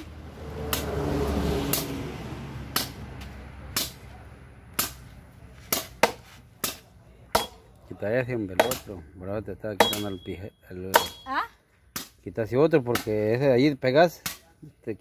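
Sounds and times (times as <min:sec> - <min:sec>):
machete chopping logs: 0:00.0 - 0:01.0, 0:01.6 - 0:02.0, 0:02.7 - 0:07.7, 0:08.5 - 0:09.0, 0:09.8 - 0:10.2, 0:10.8 - 0:11.3, 0:11.9 - 0:12.2, 0:12.8 - 0:13.3, 0:14.2 - 0:14.5.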